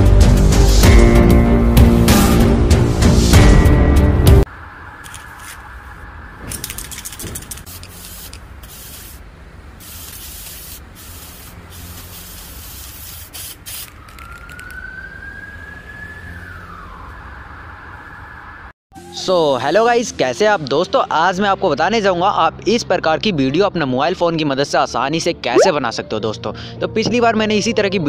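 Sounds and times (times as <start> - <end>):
street background noise: 4.5 - 18.7
spray-paint can hissing: 6.8 - 9.2, 9.8 - 14.7
siren-like gliding tone: 14.0 - 18.6, 25.6 - 25.8.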